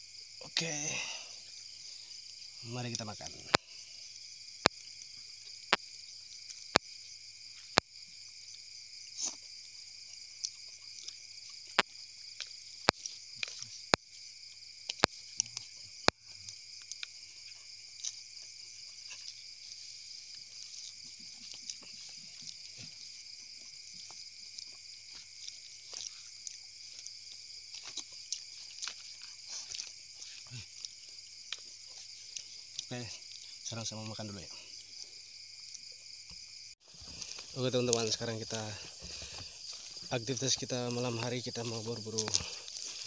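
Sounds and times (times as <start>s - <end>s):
night insects chirping: 0.0s - 43.0s
faint chewing: 7.5s - 33.7s, 34.5s - 36.0s, 36.9s - 43.0s.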